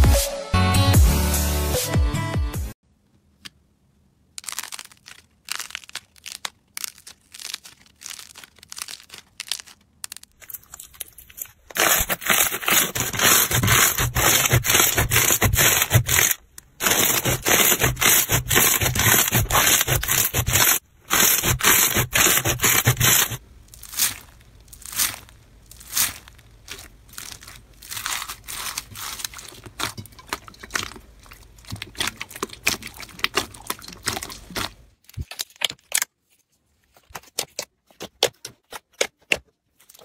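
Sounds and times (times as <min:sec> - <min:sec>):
slime crackling and crunching: 0:04.4 - 0:36.1.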